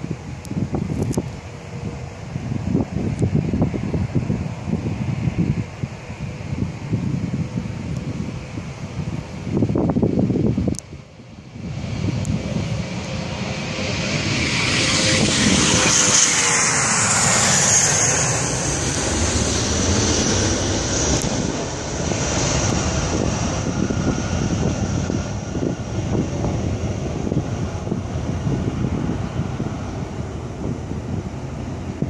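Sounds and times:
jet engines roaring at takeoff: 0:00.0 - 0:32.0
falling jet whine: 0:11.6 - 0:32.0.

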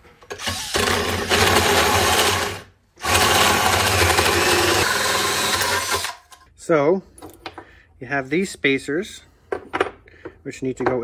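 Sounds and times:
power drill hole saw cutting metal: 0:00.3 - 0:06.3.

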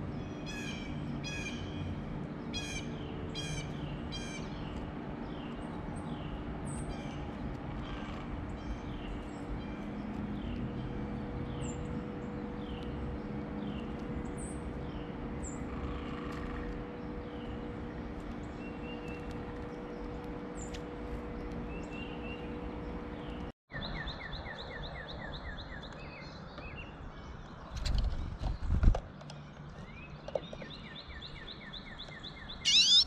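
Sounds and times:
steady low hum: 0:00.0 - 0:23.5
songbird chirping: 0:29.3 - 0:33.0
faint high bird calls: 0:32.5 - 0:33.0
bird quick run of notes: 0:32.7 - 0:33.0.

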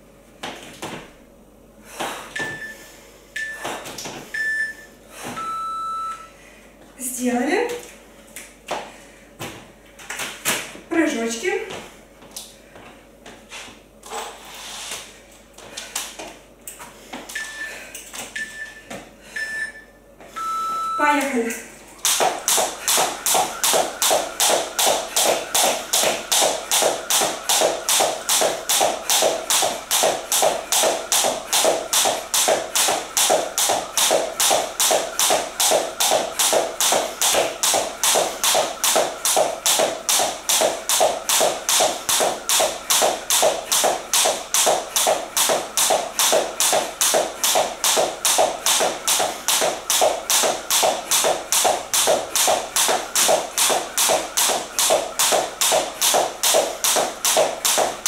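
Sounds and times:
jump rope tapping wooden floor: 0:00.4 - 0:01.1, 0:03.6 - 0:04.2, 0:22.0 - 0:58.0
sneakers landing: 0:00.4 - 0:01.2, 0:22.1 - 0:58.0.

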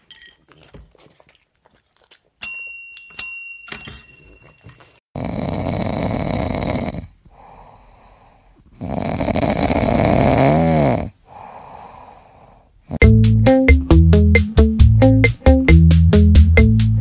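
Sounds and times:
dog snoring: 0:05.2 - 0:07.6, 0:08.7 - 0:12.4.

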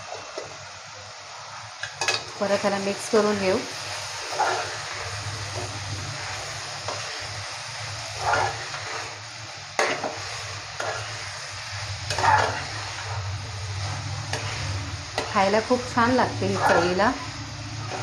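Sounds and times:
prawns sizzling in a pan: 0:00.0 - 0:18.0
scraping against a pan: 0:04.2 - 0:07.3, 0:08.0 - 0:09.2, 0:09.8 - 0:15.6, 0:16.4 - 0:18.0.

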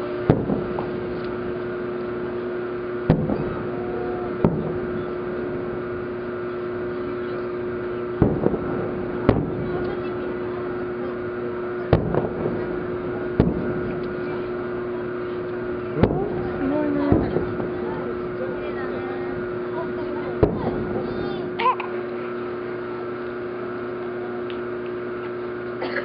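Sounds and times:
firework shells bursting: 0:00.0 - 0:22.6
steady hum: 0:00.0 - 0:26.0.

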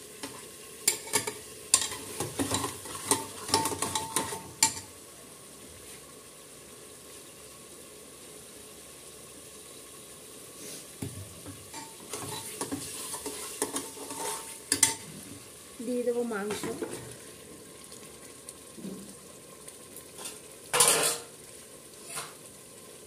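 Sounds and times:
spices sizzling in hot oil: 0:00.0 - 0:23.0
spatula scraping pot: 0:11.7 - 0:15.1.

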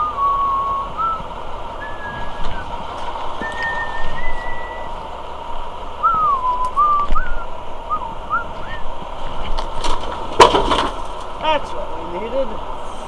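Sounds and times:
person whistling a tune: 0:00.0 - 0:01.2, 0:01.8 - 0:02.7, 0:03.4 - 0:04.9, 0:06.0 - 0:08.9
faint steady hum: 0:00.0 - 0:13.0.

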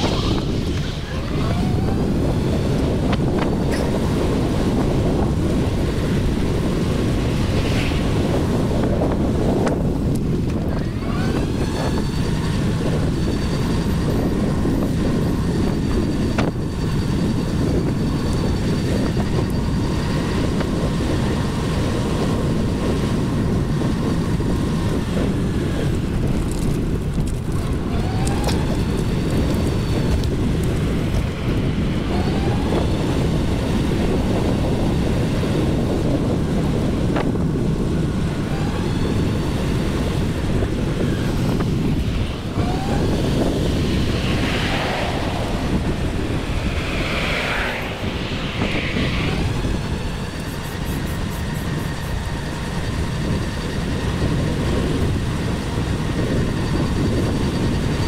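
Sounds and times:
wind rumble on microphone: 0:00.0 - 0:58.0
thin high whine: 0:38.2 - 0:54.6.

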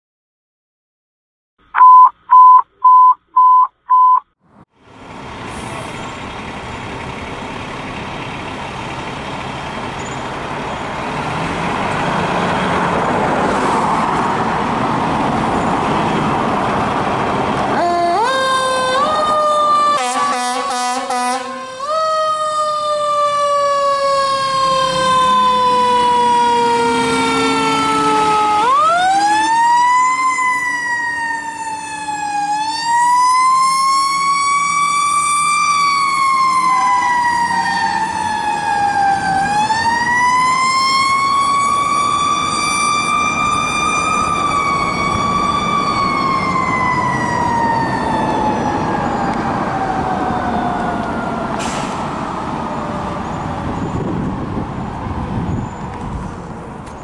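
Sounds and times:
truck engine revving: 0:04.5 - 0:55.6
fire truck siren wailing: 0:11.3 - 0:55.9.

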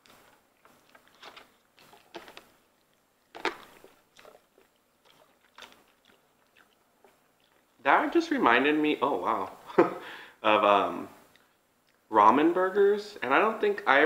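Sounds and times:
chewing and wet mouth clicks: 0:00.0 - 0:07.8, 0:11.3 - 0:12.1.

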